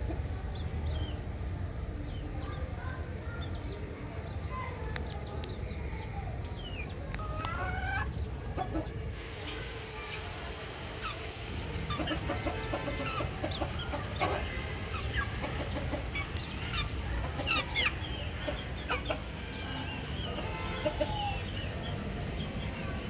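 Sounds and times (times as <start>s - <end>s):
chickens clucking: 0.0s - 22.8s.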